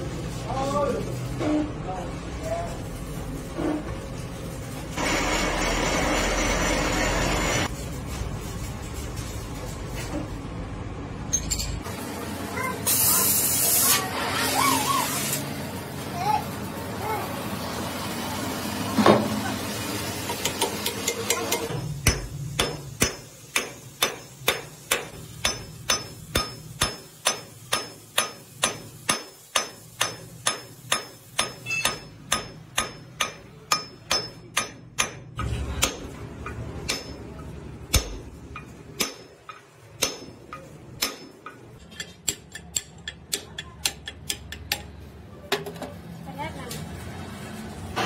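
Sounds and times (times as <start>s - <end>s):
hammer striking steel: 20.4s - 45.0s.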